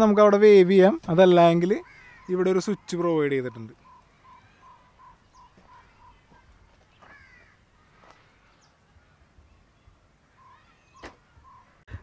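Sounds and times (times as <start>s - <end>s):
crow cawing: 1.8s - 2.6s, 3.8s - 6.4s, 7.0s - 8.2s.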